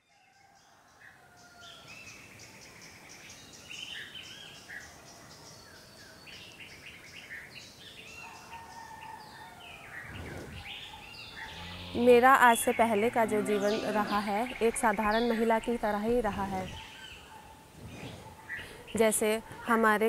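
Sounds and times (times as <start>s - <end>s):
birds chirping and singing: 0.4s - 20.0s
insects trilling: 10.3s - 16.9s.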